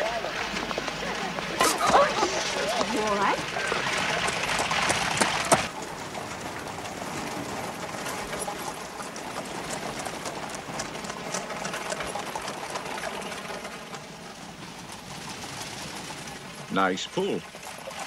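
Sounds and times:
street hubbub: 0.0 - 5.7
horse hooves on cobblestones: 0.0 - 16.7.

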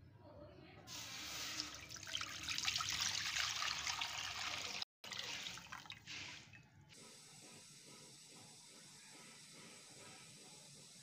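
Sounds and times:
milk pouring into metal pot: 1.5 - 6.6.

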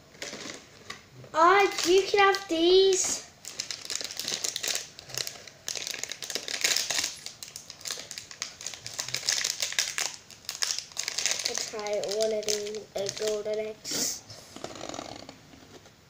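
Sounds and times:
packaging crinkling: 0.1 - 13.7.

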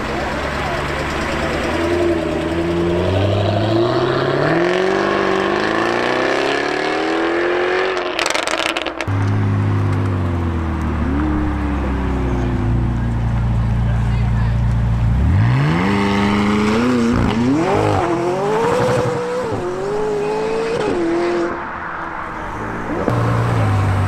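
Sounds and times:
car engine at low revs: 0.0 - 6.7, 9.0 - 20.1
car engine accelerating hard: 0.0 - 24.0.

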